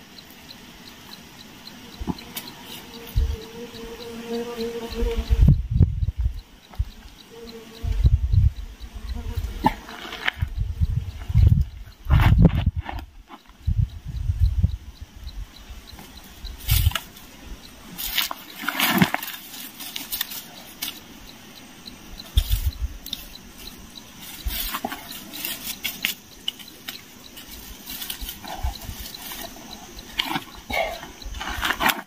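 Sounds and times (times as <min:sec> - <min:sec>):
hands scraping dry soil: 0:09.6 - 0:10.5, 0:17.9 - 0:21.1, 0:22.3 - 0:32.0
rustling dry leaves and brush: 0:17.9 - 0:21.1, 0:22.1 - 0:32.0.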